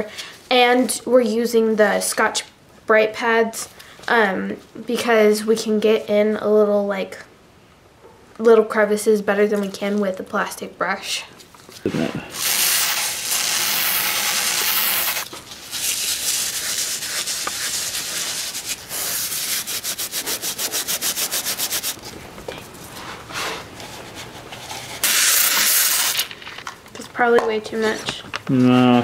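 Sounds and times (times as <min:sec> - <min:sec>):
aerosol spray hissing: 0:12.3 - 0:15.2, 0:25.0 - 0:26.2.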